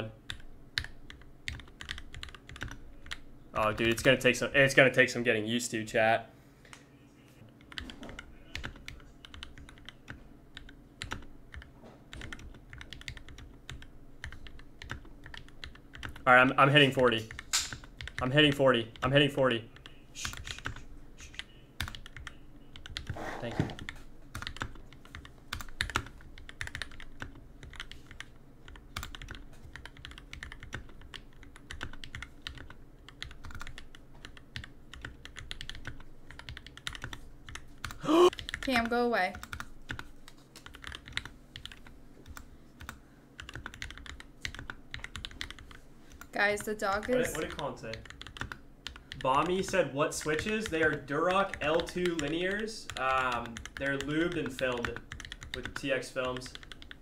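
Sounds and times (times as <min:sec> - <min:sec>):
mechanical keyboard typing: 0:00.3 - 0:04.2, 0:07.6 - 0:16.3, 0:21.8 - 0:23.2, 0:23.8 - 0:57.0.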